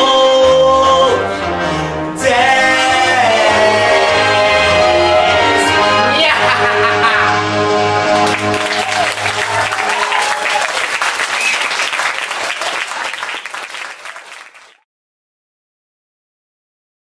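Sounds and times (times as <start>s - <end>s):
audience applauding: 8.0s - 14.8s.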